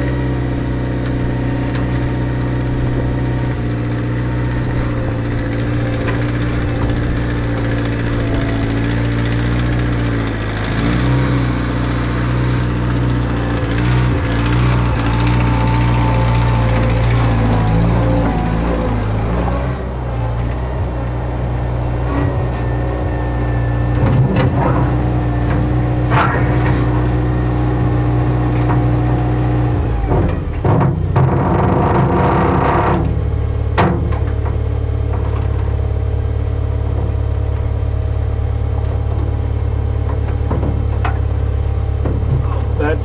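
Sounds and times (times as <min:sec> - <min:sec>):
loader engine running: 0:00.0 - 0:43.0
sharp clunk: 0:24.0 - 0:27.0, 0:33.8 - 0:35.7.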